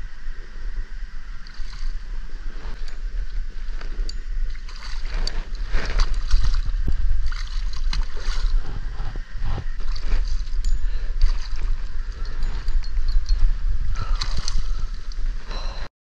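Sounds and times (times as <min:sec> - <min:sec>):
wind rumbling on microphone: 0:00.0 - 0:15.9
fish splashing at water surface: 0:01.4 - 0:02.0, 0:04.5 - 0:08.6, 0:14.0 - 0:15.2.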